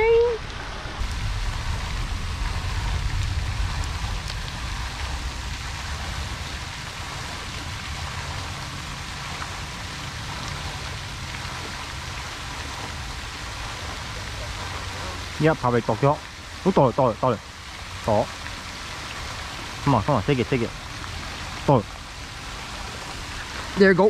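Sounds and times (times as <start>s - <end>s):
wind rumble on microphone: 0.0s - 16.7s
fountain spray splashing on water: 0.0s - 24.0s.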